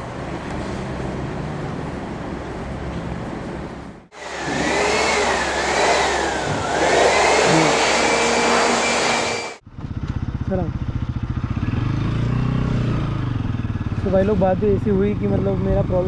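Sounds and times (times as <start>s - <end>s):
electric air blower whine: 4.1s - 9.6s.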